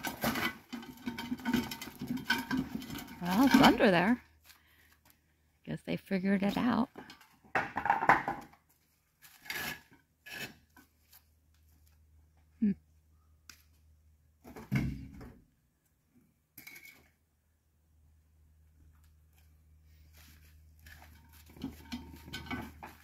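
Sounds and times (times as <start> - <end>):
metal clanks and scrapes: 0.0 - 4.2, 9.2 - 10.9, 16.6 - 17.1, 20.8 - 23.0.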